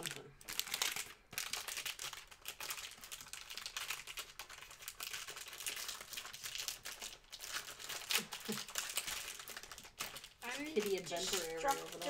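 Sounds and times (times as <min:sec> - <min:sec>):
plastic wrapper crinkling: 0:00.0 - 0:12.0.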